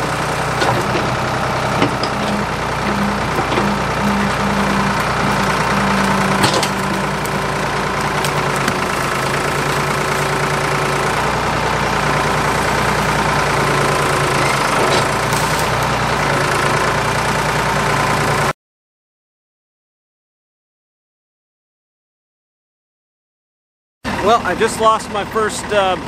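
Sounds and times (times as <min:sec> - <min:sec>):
backhoe engine running: 0:00.0 - 0:18.5, 0:24.1 - 0:26.0.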